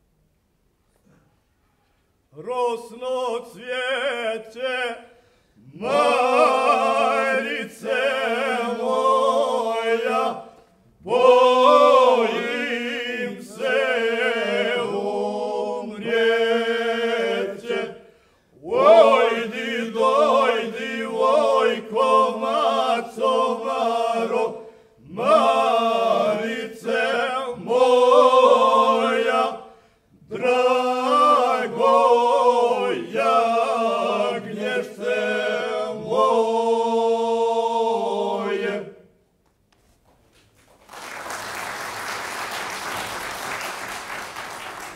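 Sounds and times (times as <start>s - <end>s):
male group singing unaccompanied: 2.5s - 5.0s, 5.7s - 10.4s, 11.0s - 18.0s, 18.6s - 29.7s, 30.3s - 39.0s.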